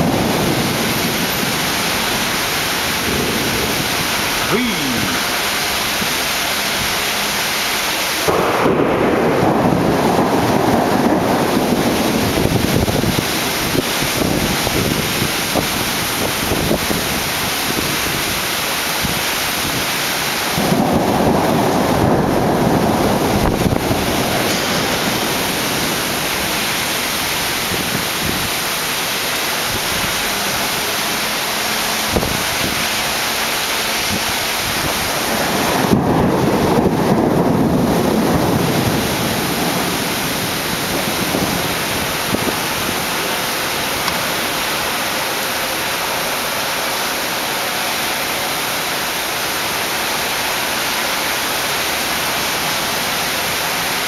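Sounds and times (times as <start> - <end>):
thunder rolling: 0.0 - 4.5, 8.2 - 18.2, 20.4 - 30.8, 32.1 - 44.5
heavy rain: 0.0 - 54.0.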